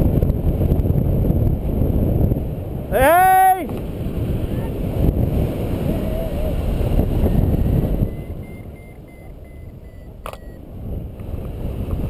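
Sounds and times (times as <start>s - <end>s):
wind buffeting microphone: 0.0s - 12.0s
variometer short beeps: 7.2s - 10.6s
sharp click: 10.2s - 10.5s.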